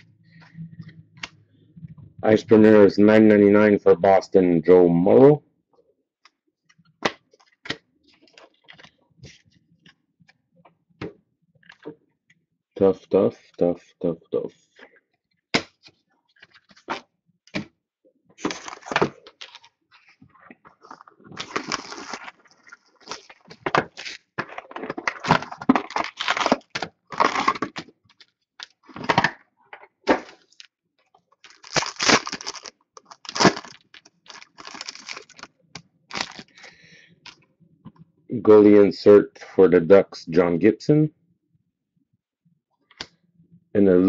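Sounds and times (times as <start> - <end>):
card packs crinkling and tearing: 18.4 - 19.7, 20.8 - 29.3, 31.4 - 36.8.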